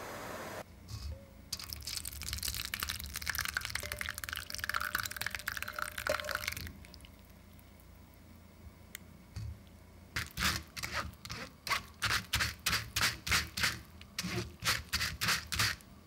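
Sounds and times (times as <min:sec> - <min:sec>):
fruit pulp pouring into a sieve: 0:01.6 - 0:07.1.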